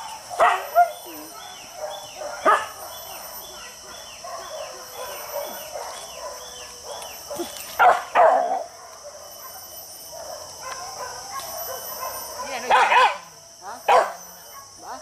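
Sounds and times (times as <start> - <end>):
dogs barking: 0.0 - 14.8
forest insects droning: 0.0 - 15.0.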